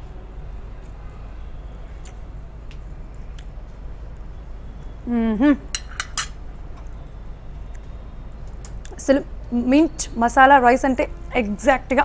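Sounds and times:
woman humming mmm: 5.0s - 5.7s
fork clinking against plate: 5.7s - 6.4s.

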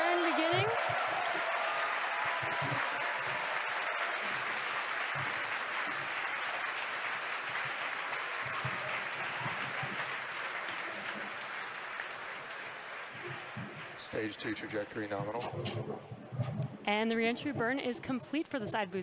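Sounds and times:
crowd applauding and cheering: 0.0s - 16.2s.

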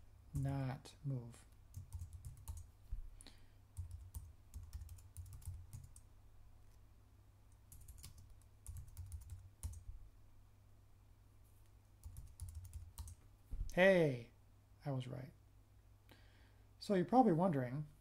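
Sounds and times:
computer keyboard typing: 1.7s - 2.7s, 3.8s - 6.1s, 7.6s - 9.9s, 12.0s - 13.2s.

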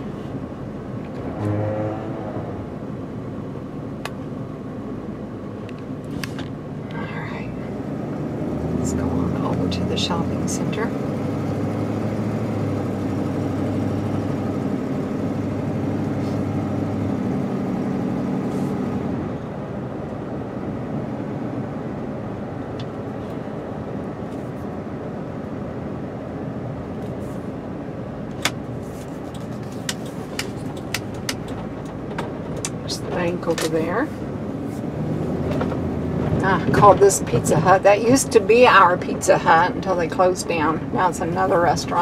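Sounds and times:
car engine humming: 0.0s - 42.0s
road noise inside cabin: 0.0s - 42.0s
turn signal ticking: 29.3s - 34.0s.

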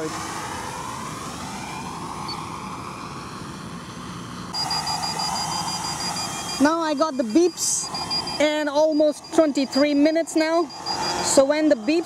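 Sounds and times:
drone propellers whirring: 0.0s - 12.0s
short high-pitched beeps: 4.6s - 11.8s.

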